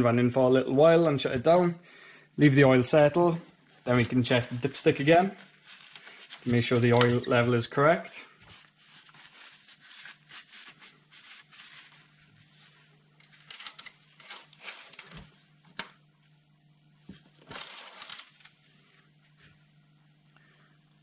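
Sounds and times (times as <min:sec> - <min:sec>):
paper towel rustling: 0:03.8 - 0:15.6.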